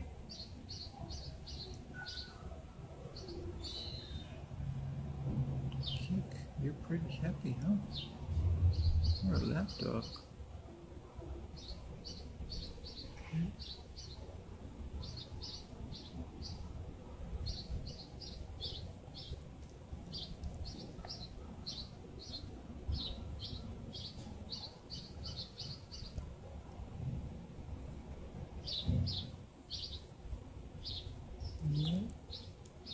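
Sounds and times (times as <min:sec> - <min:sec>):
small bird chirping: 0:00.3 - 0:02.5, 0:30.8 - 0:32.9
low background rumble: 0:02.6 - 0:24.2.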